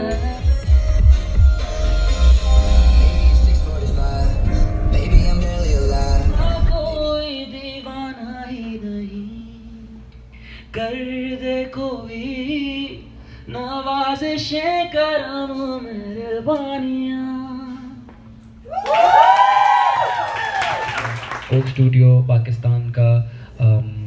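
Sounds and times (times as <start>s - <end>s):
person singing slow melody: 0.0s - 10.1s.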